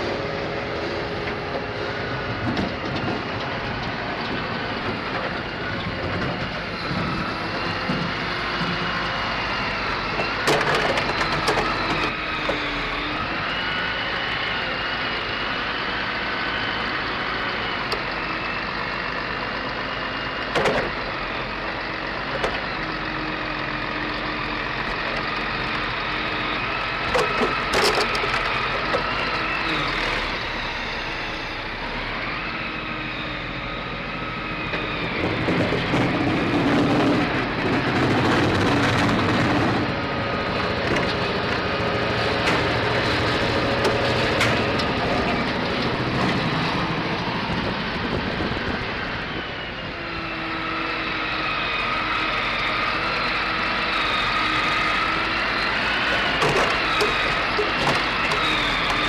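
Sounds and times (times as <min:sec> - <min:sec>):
forestry machine engine running: 0:00.0 - 0:59.0
hydraulic whine: 0:20.2 - 0:59.0.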